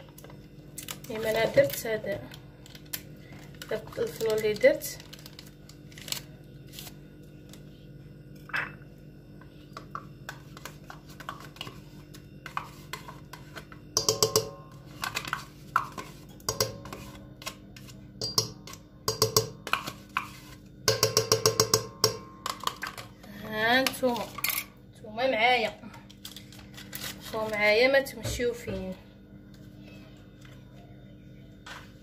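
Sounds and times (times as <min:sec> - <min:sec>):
metal spoon scraping a metal bowl: 0:12.4 - 0:22.2.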